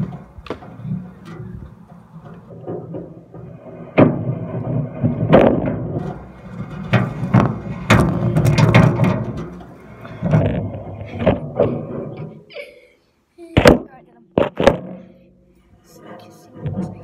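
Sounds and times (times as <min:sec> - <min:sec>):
sharp knocks and thuds: 0:00.0 - 0:12.0, 0:13.6 - 0:15.2
rubbing and rumbling: 0:00.0 - 0:12.5, 0:13.6 - 0:17.0.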